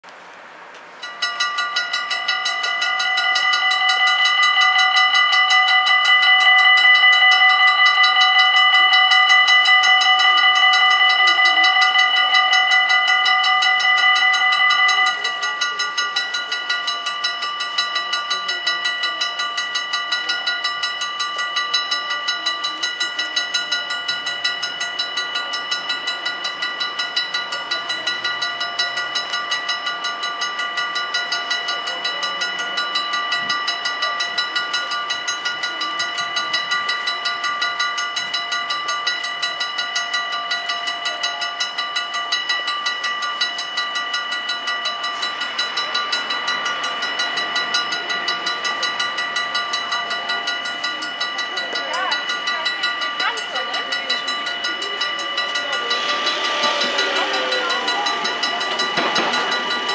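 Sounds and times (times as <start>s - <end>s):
level crossing bells ringing: 0.9s - 59.9s
rushing noise: 53.9s - 59.9s.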